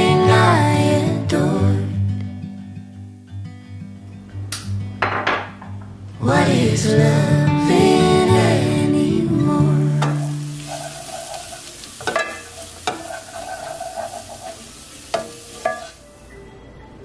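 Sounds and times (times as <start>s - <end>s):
vegetables sizzling in a pot: 7.5s - 16.2s
wooden spoon stirring: 10.6s - 16.0s
spoon knocking against pan: 12.0s - 13.5s.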